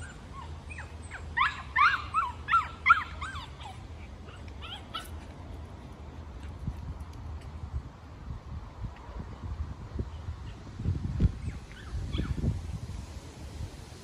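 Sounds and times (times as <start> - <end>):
dog yipping: 0.0 - 5.2, 11.4 - 12.4.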